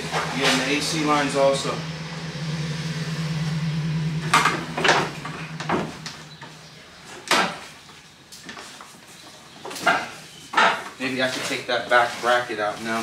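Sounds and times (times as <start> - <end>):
steady low hum: 0.0 - 7.9.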